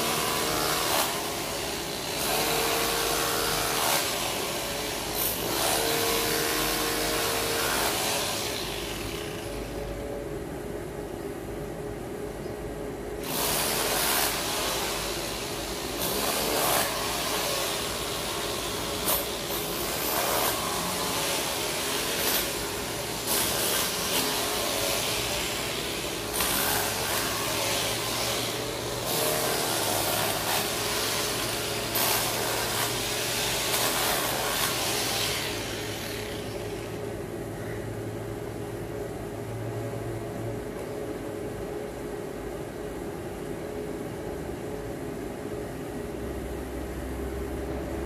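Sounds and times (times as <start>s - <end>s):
steady machine hum: 0.0s - 48.0s
power tool hissing: 13.2s - 37.0s.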